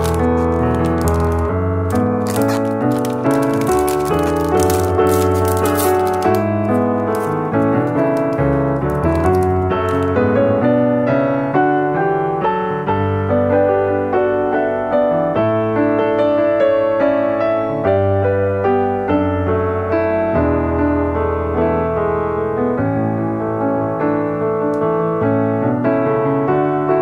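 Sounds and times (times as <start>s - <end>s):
plastic wrapper crinkling: 0.0s - 10.5s
piano music: 0.0s - 27.0s.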